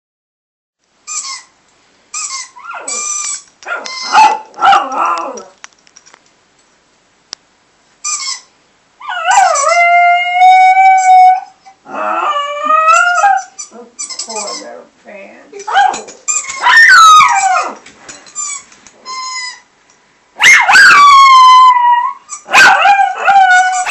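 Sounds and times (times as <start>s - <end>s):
squeaky toy squeaks: 1.0s - 4.5s, 8.0s - 8.5s, 12.9s - 14.8s, 15.6s - 19.7s, 22.2s - 22.7s, 23.5s - 23.9s
dog howling: 3.7s - 5.6s, 9.0s - 14.0s, 16.6s - 17.8s, 20.4s - 23.9s.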